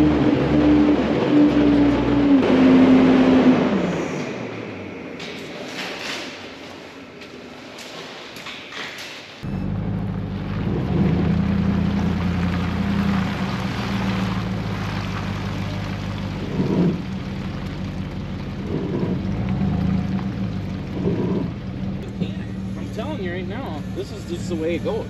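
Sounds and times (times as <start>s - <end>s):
truck engine running: 9.4s - 25.0s.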